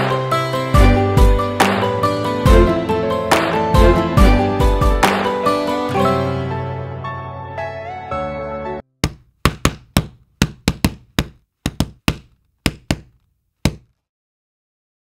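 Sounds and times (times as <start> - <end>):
music: 0.0 - 8.8.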